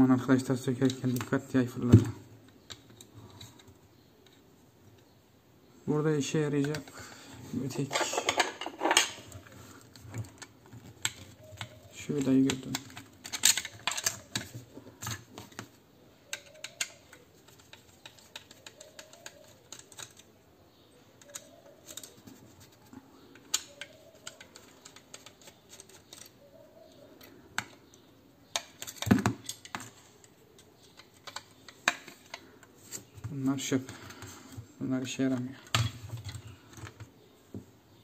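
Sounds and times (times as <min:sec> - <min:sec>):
small metal parts tapping: 0:10.0 - 0:15.2
screwdriver clicking and scraping: 0:16.3 - 0:20.3, 0:21.2 - 0:26.4, 0:27.2 - 0:33.2.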